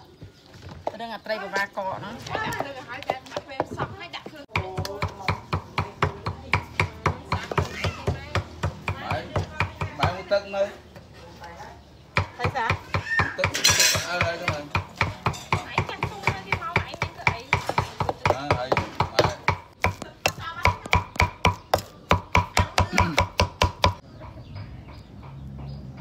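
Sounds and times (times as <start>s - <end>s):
cleaver chopping on wooden block: 4.5s - 10.2s, 12.2s - 24.0s.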